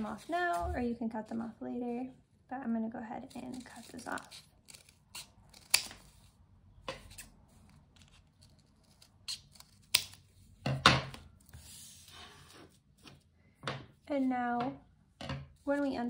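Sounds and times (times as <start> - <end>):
scissors cutting paper: 3.3 - 6.2, 7.0 - 10.2.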